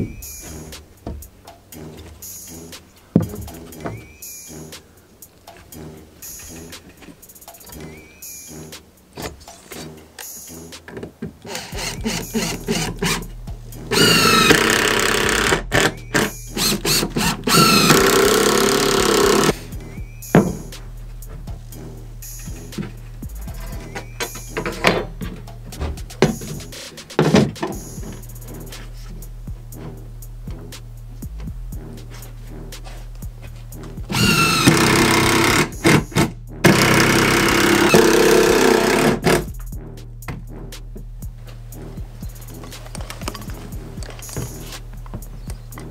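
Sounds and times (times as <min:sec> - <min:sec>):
cordless driver driving screws: 0:11.4 - 0:13.2, 0:13.9 - 0:19.5, 0:34.1 - 0:39.3
knocks and clicks of handling: 0:42.5 - 0:45.9.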